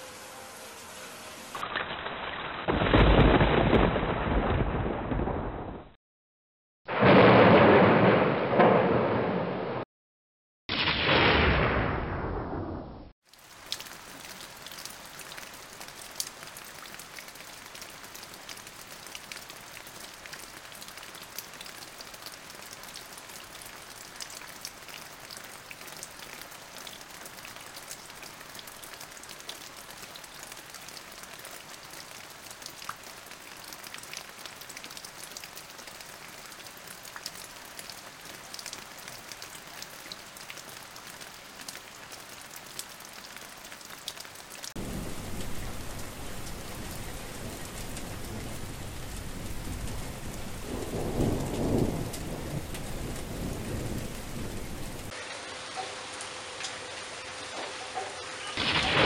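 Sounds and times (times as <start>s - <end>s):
heavy rain into water: 0.0s - 5.6s, 13.2s - 57.6s.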